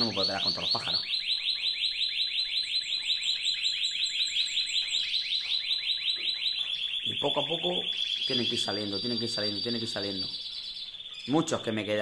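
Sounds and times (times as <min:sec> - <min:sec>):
canary singing trill: 0:00.0 - 0:12.0.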